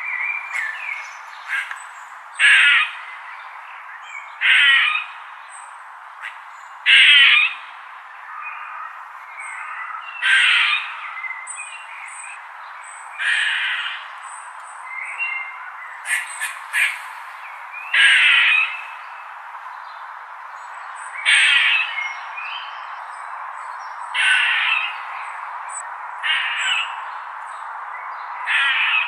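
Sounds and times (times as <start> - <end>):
steady background hiss: 0.0 - 29.0
squirrel buzzy call: 16.0 - 17.1, 24.2 - 24.9, 26.2 - 26.9, 28.5 - 29.0.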